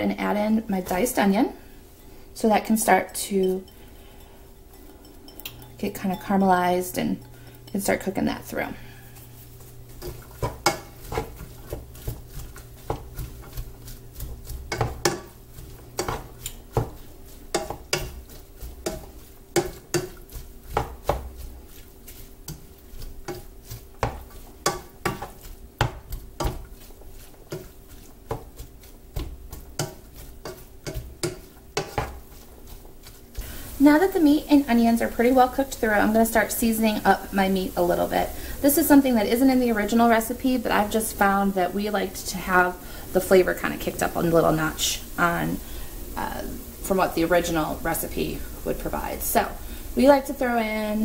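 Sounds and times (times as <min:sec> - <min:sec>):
spatula scraping a skillet: 0:00.5 - 0:38.5.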